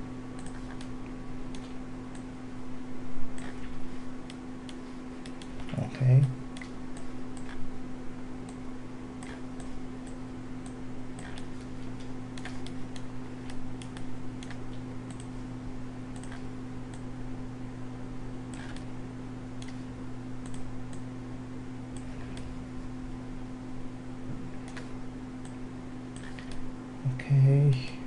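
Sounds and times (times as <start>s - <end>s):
low electrical hum: 0.0s - 28.0s
mouse and keyboard clicks: 0.4s - 0.9s, 3.4s - 3.7s, 11.2s - 11.5s, 18.6s - 18.9s, 26.2s - 26.6s.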